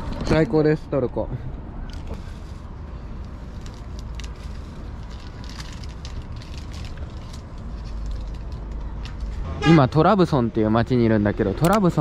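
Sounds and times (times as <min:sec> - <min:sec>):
city traffic rumble: 0:00.0 - 0:12.0
food wrapper crinkling: 0:03.2 - 0:09.2.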